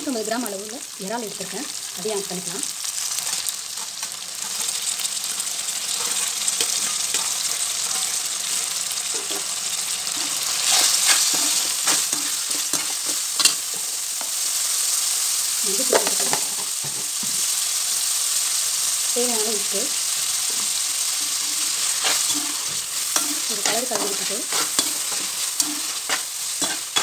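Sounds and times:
prawns sizzling in hot oil: 0.0 - 27.0
spoon scraping and clinking on pan: 6.0 - 8.1, 21.8 - 27.0.

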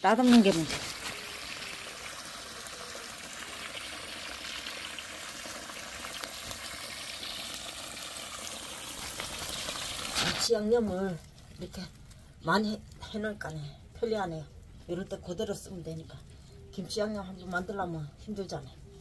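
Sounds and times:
water running into basin: 0.1 - 10.5.

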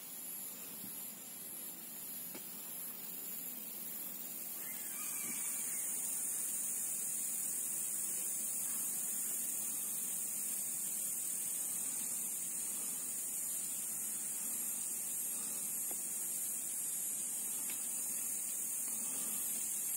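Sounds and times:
faint background ambience: 0.0 - 19.9
steady high-pitched hiss: 0.0 - 19.9.

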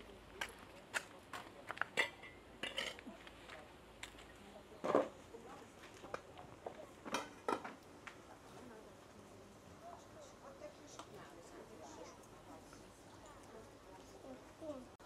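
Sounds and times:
dishes and utensils clattering: 1.9 - 3.2, 7.0 - 7.8.

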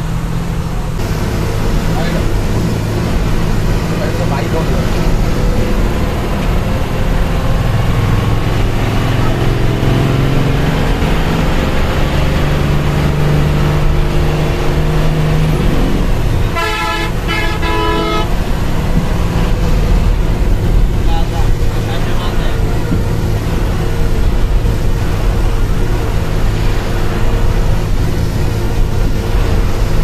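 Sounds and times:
coach engine droning: 0.0 - 30.0
vehicle horn blasts: 16.5 - 18.4.

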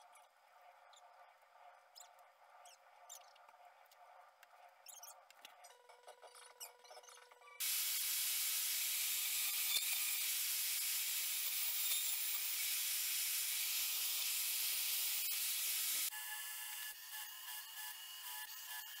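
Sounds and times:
power saw cutting: 7.6 - 19.0.

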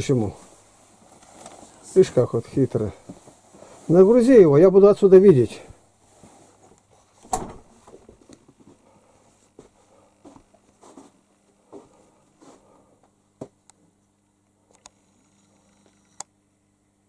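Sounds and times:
footsteps: 6.1 - 13.6
door shutting with thud: 7.2 - 7.8.

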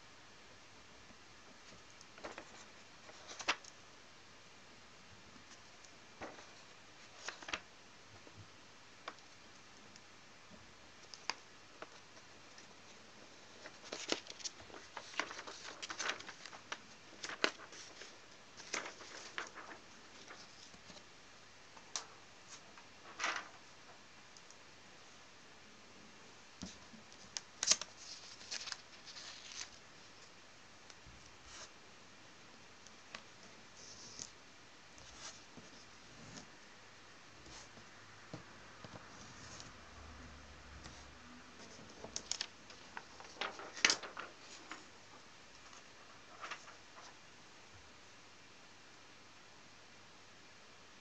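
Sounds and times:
paper rustling and tapping: 1.6 - 3.7, 5.5 - 8.4, 13.4 - 21.0, 21.8 - 23.7, 26.6 - 29.7, 41.6 - 47.2.

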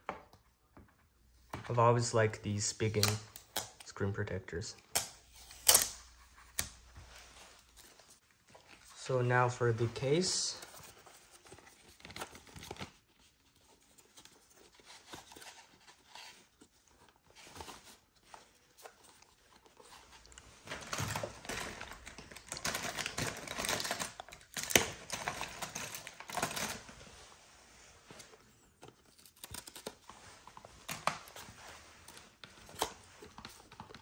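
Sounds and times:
packaging rustling and tearing: 10.7 - 27.3, 28.1 - 34.0.

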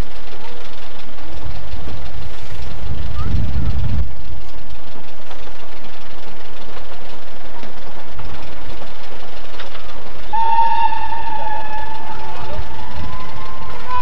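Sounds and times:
steam locomotive running: 0.0 - 14.0
steam locomotive whistle: 10.3 - 14.0.

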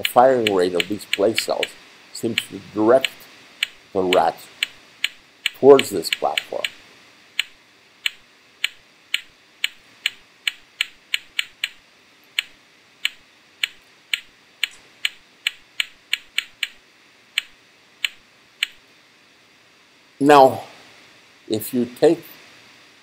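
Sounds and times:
sharp clicks: 0.0 - 6.8, 7.4 - 16.8, 17.4 - 18.8.

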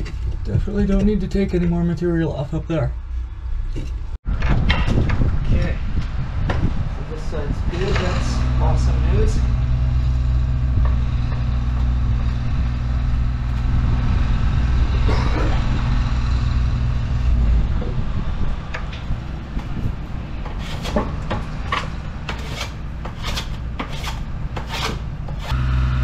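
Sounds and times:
steady low hum: 5.2 - 26.0
wooden board being scraped: 20.4 - 25.6.

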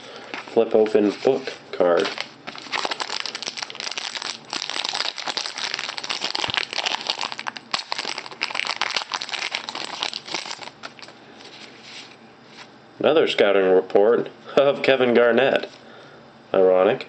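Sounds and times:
foil wrapper crinkling and tearing: 1.9 - 11.2.

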